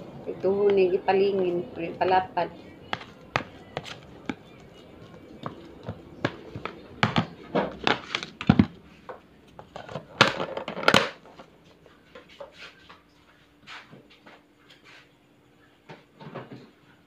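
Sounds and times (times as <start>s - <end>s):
faint steady hum: 0.0s - 17.0s
kitchen items knocking: 2.8s - 8.8s, 9.8s - 11.2s.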